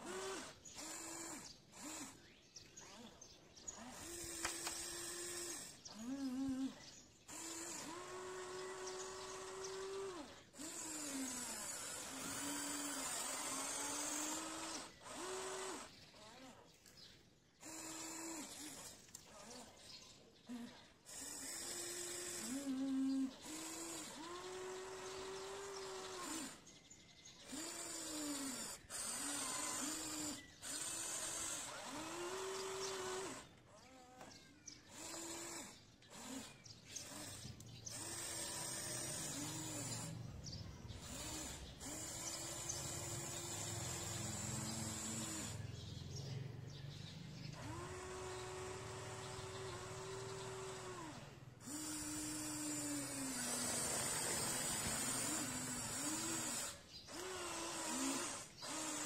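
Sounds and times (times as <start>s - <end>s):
electric motors whining: 0.0s - 59.0s.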